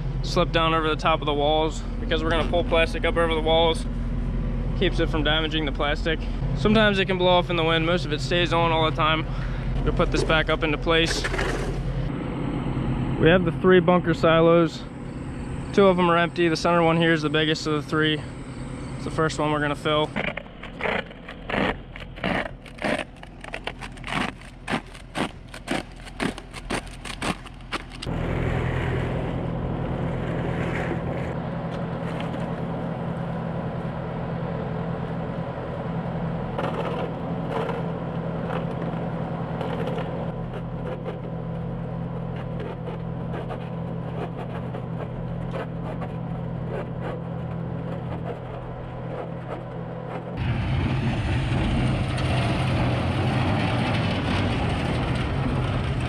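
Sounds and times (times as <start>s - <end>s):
farm machine engine running: 0.0s - 56.0s
knocks and scrapes: 9.0s - 12.1s, 19.4s - 32.7s, 36.6s - 39.0s, 39.6s - 56.0s.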